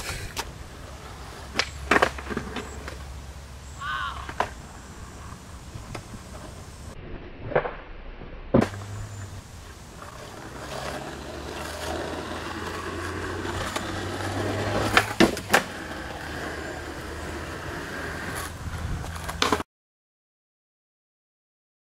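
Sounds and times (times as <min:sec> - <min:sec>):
skateboard clacking: 0:00.0 - 0:03.1, 0:04.1 - 0:04.7, 0:09.9 - 0:19.6
skateboard wheels rolling on asphalt: 0:00.0 - 0:19.7.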